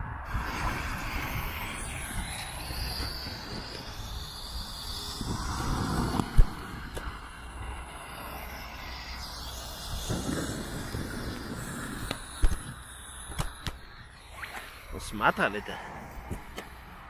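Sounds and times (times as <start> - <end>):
fireworks hissing: 0.2 - 17.0
sharp cracks: 9.2 - 15.7.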